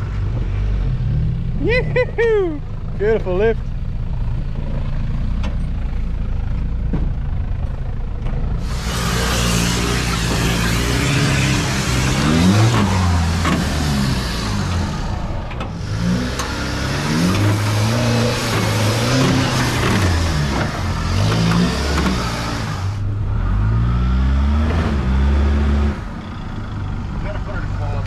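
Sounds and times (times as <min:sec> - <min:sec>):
rushing noise: 0:08.6 - 0:23.0
engine revving: 0:08.6 - 0:28.0.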